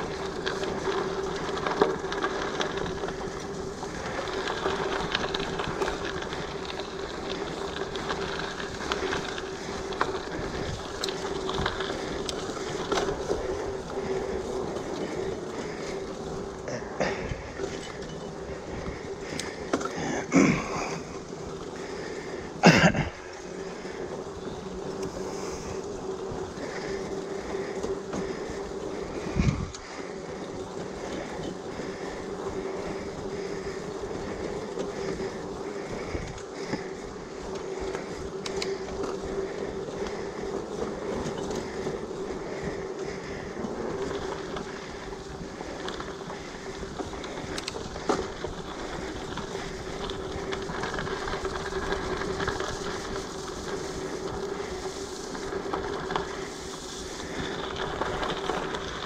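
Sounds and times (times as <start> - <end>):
bike tyres and drivetrain humming: 0.0 - 59.0.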